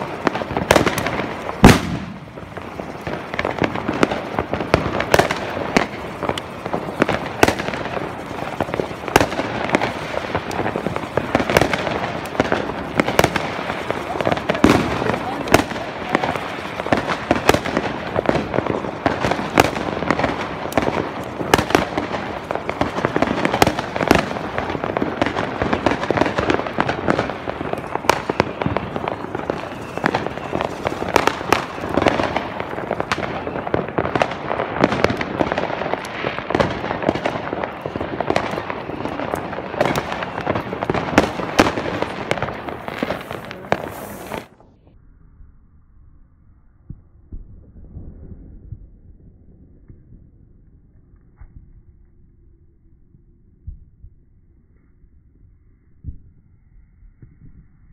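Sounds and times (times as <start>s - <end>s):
firecracker crackle: 0.0s - 44.8s
firework bangs: 0.0s - 44.9s.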